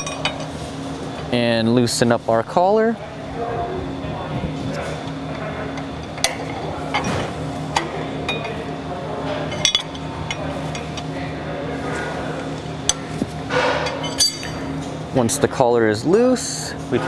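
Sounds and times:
steady background hum: 0:00.0 - 0:17.0
wrenches clinking on metal: 0:13.8 - 0:14.6.

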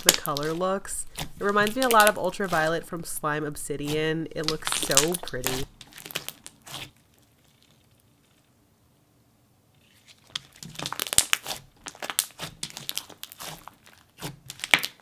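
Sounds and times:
slime crackling and popping: 0:00.0 - 0:08.5, 0:09.8 - 0:15.0.

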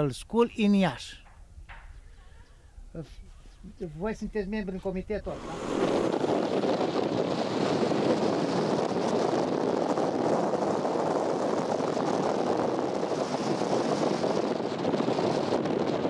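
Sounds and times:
car road and wind noise: 0:05.3 - 0:16.0.

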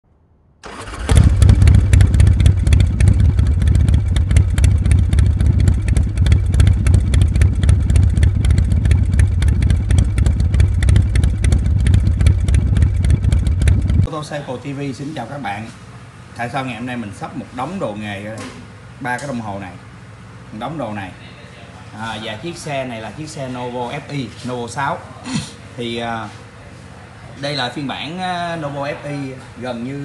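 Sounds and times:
motorcycle engine running: 0:00.6 - 0:17.4.

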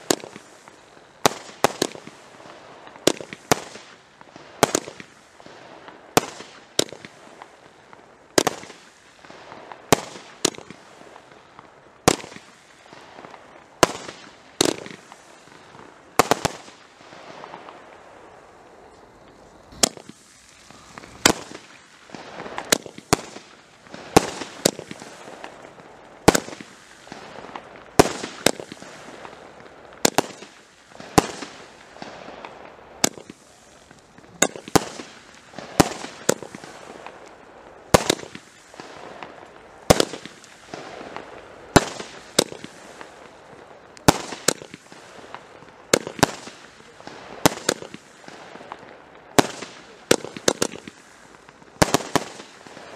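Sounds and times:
fireworks bangs: 0:00.0 - 0:52.9.

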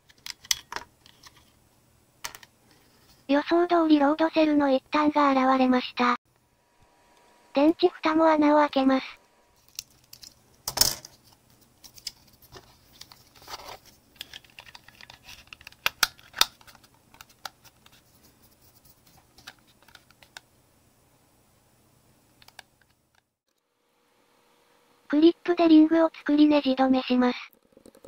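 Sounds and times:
plastic clicks and rustles: 0:09.6 - 0:18.0
crackling plastic snap: 0:14.2 - 0:17.6.

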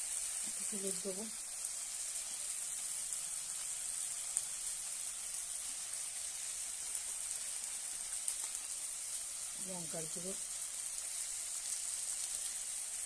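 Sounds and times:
food sizzling in hot oil: 0:00.0 - 0:13.0.

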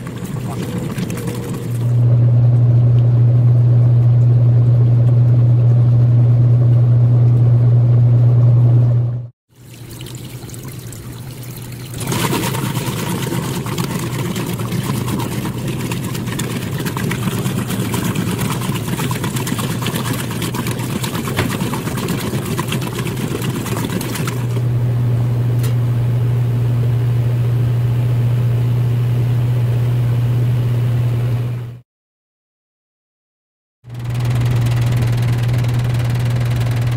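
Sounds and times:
water and clothes sloshing: 0:00.0 - 0:02.0, 0:09.5 - 0:24.7
washing machine motor hum: 0:00.0 - 0:31.8, 0:33.9 - 0:36.9.

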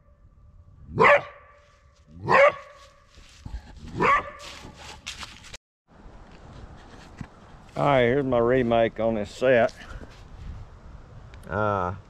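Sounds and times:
coyote barking: 0:01.0 - 0:01.5, 0:02.2 - 0:02.8
soft scuffing and clicks: 0:01.6 - 0:05.6.

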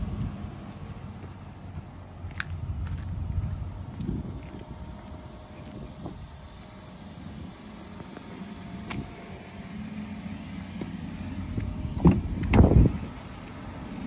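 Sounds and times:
car door thud: 0:11.9 - 0:12.9
car door latch clicking: 0:12.0 - 0:12.8.

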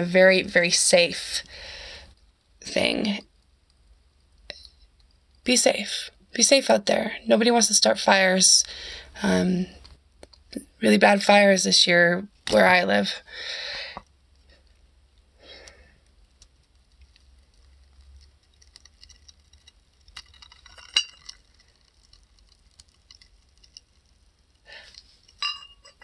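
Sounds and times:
paper burning with faint ticks: 0:00.0 - 0:10.6, 0:12.3 - 0:26.0
ceramic clink: 0:20.8 - 0:21.4, 0:25.4 - 0:26.0.

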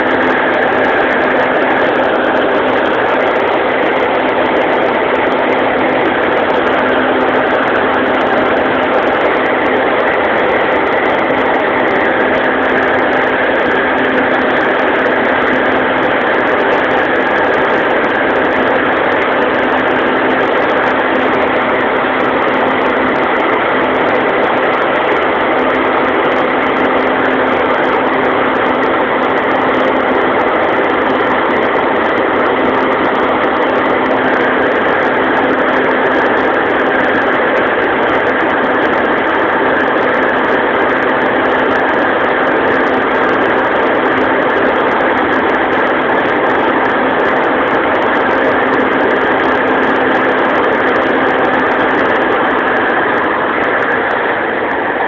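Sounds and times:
combine harvester droning: 0:00.0 - 0:55.0.

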